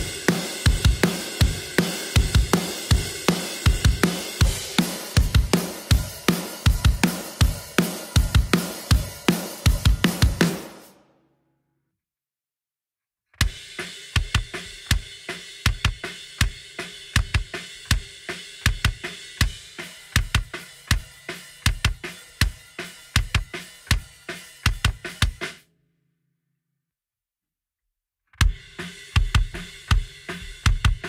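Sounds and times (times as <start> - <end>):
kick drum groove: 0.0 - 10.8, 14.2 - 25.5, 28.4 - 31.0
snare and cymbals: 0.0 - 11.0, 13.4 - 25.6, 28.4 - 31.0.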